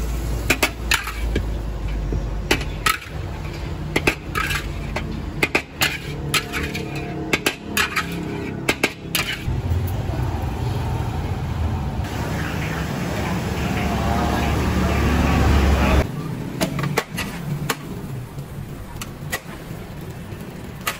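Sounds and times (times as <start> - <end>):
metal spatula scraping a wok: 0.6 - 1.4, 2.6 - 9.5, 16.9 - 17.6.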